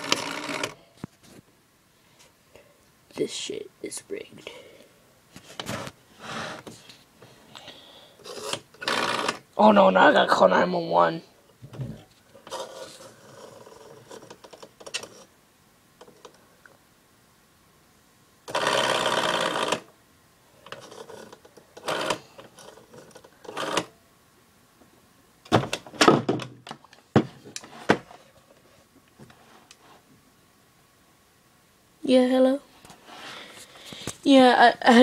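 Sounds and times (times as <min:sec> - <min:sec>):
rotary telephone dial whirring: 0:00.0 - 0:00.8, 0:08.2 - 0:09.4, 0:12.4 - 0:15.3, 0:18.5 - 0:19.9, 0:20.6 - 0:23.9.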